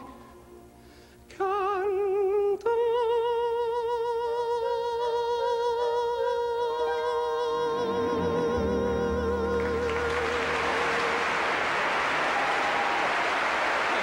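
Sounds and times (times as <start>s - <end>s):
man singing with vibrato: 0.0s - 0.5s, 1.3s - 11.2s
orchestra chord: 7.0s - 12.0s
audience applauding: 9.5s - 14.0s.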